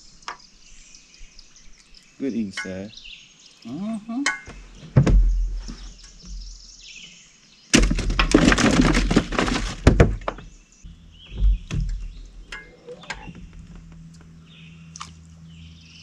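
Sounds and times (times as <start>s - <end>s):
faint bird chirps: 0.0s - 7.4s
low steady hum: 10.1s - 16.0s.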